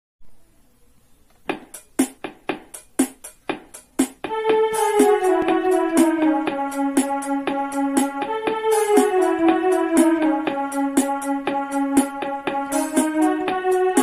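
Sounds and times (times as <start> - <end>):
keyboard melody: 1.3 - 14.0
electronic keyboard drum rhythm: 1.4 - 14.0.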